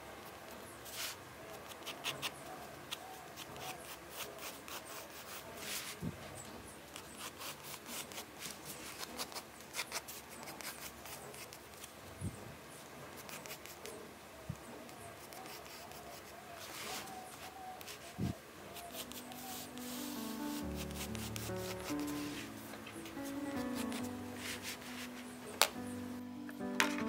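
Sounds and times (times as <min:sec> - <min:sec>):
hands rubbing paper: 0:00.8 - 0:06.0, 0:14.9 - 0:26.0
pencil scratching on paper: 0:00.8 - 0:06.0, 0:07.0 - 0:11.8, 0:13.2 - 0:14.0, 0:14.9 - 0:18.1, 0:18.7 - 0:25.7.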